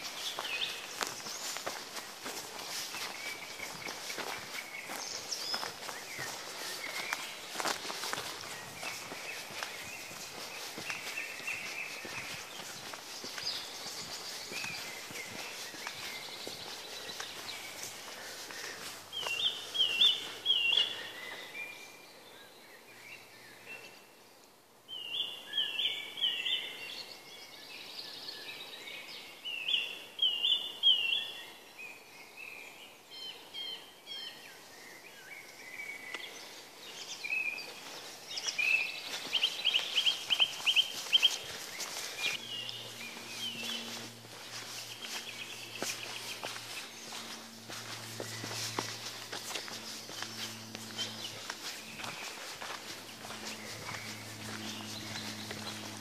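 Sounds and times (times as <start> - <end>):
faint footsteps on gravel: 0.0 - 21.8, 35.3 - 56.0
songbirds singing: 0.0 - 56.0.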